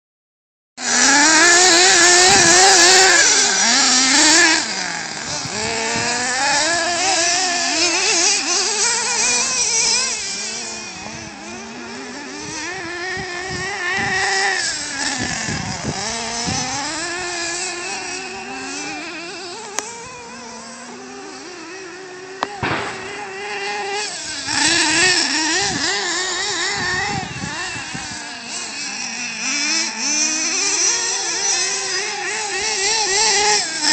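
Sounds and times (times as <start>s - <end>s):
rc truck engines revving: 0.8s - 33.9s.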